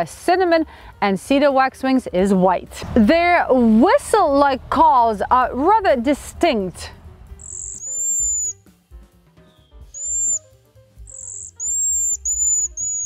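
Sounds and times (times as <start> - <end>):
soft background music: 0.0 - 13.0
birds' high thin whistled calls: 7.4 - 8.6, 9.5 - 13.0.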